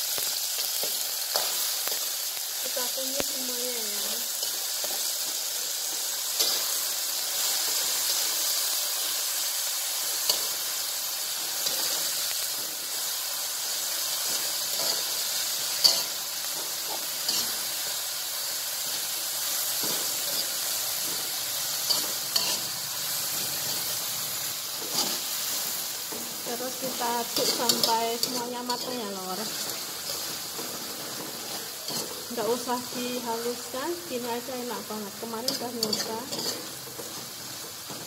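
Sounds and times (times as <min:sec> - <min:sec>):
vegetables sizzling in hot oil: 0:00.0 - 0:38.0
metal spatula scraping a wok: 0:19.7 - 0:38.0.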